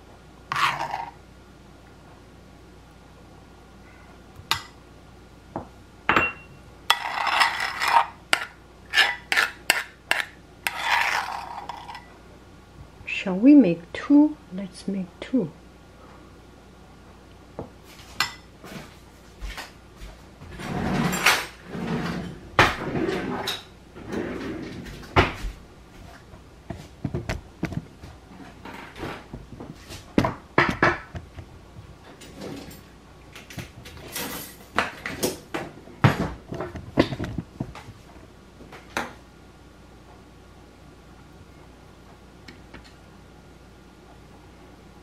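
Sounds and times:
metal spoon scraping ceramic bowl: 0.5s - 1.2s, 6.9s - 12.1s.

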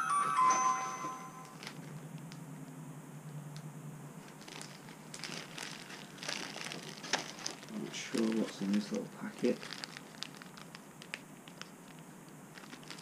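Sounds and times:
plastic bags crinkling: 1.5s - 2.0s, 4.2s - 13.0s.

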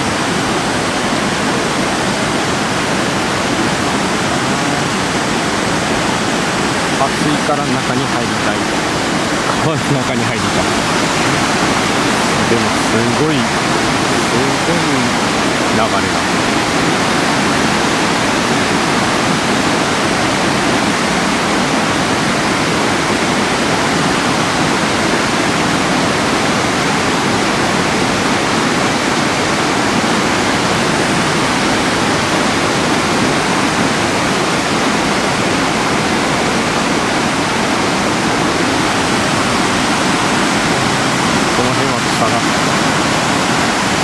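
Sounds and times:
stream rushing over rocks: 0.0s - 44.0s.

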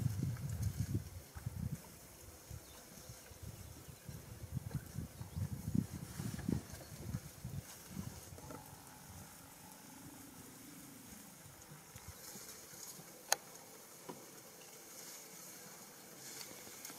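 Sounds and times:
soft low rustles and thumps: 0.0s - 2.0s, 4.1s - 8.9s.

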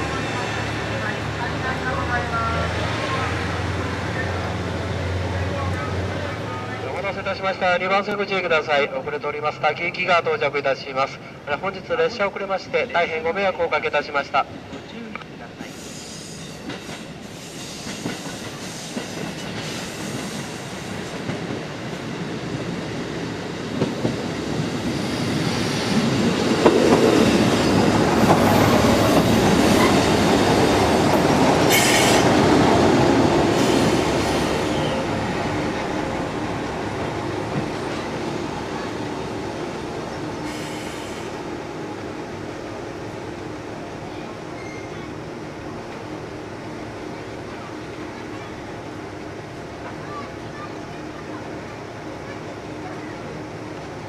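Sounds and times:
diesel train running: 0.0s - 54.0s
high wheel squeal: 44.6s - 45.1s.

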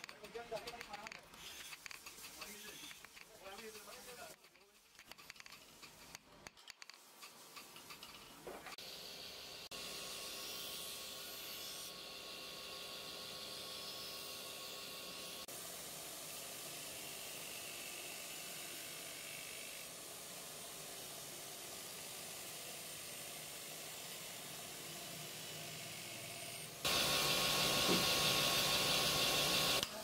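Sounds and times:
knife on grinding wheel: 26.9s - 30.0s.

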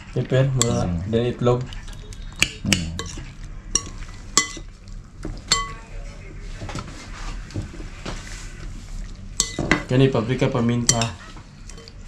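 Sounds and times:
spoon scraping in bowl: 1.7s - 4.7s
spoon clinking against glass bowl: 1.9s - 4.7s, 5.5s - 5.8s, 9.4s - 9.8s, 10.9s - 12.0s.

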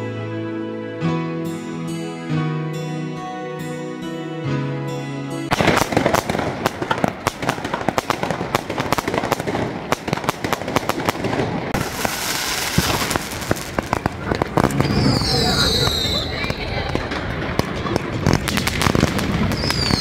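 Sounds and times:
soft music: 0.0s - 5.6s
fireworks and firecrackers crackling: 5.5s - 20.0s.

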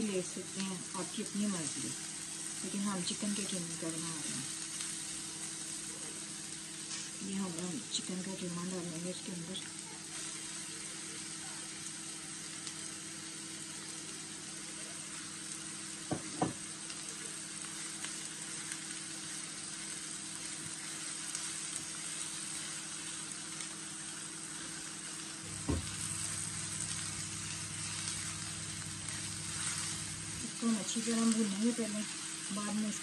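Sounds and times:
mince and onions sizzling in a pan: 0.0s - 33.0s
spatula stirring in a pan: 6.4s - 7.2s, 17.8s - 32.9s
steady low hum: 24.5s - 33.0s.

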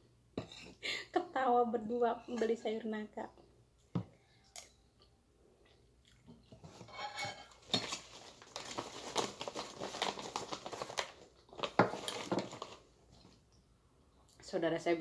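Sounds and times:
plastic bag crinkling: 7.5s - 13.4s.

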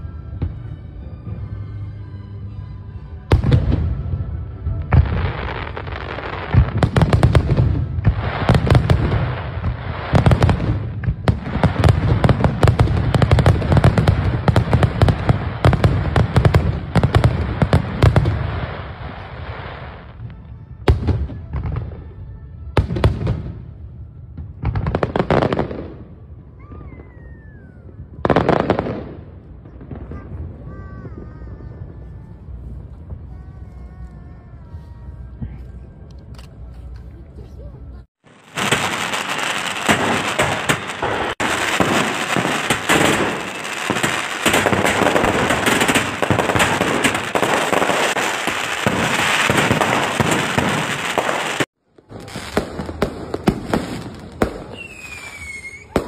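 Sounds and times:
music: 0.0s - 10.0s, 18.5s - 26.6s, 31.9s - 38.1s
fireworks bursting and crackling: 3.3s - 22.2s, 22.8s - 33.9s, 38.1s - 56.0s.

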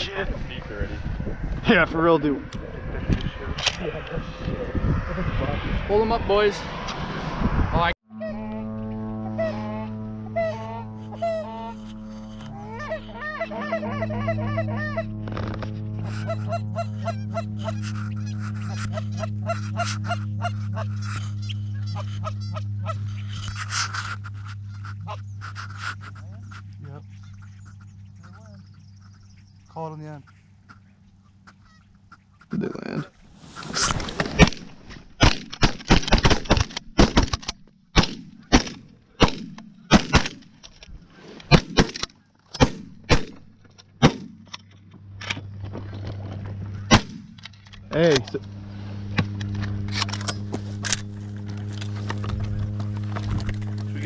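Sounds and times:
steady low hum: 0.0s - 54.0s
goose honks and clucks: 8.2s - 29.2s, 30.1s - 32.6s.

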